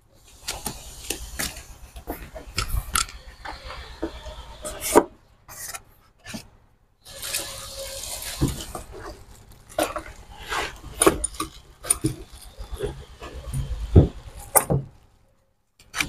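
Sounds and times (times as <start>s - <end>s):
cardboard and plastic bags rustling: 7.1s - 15.2s.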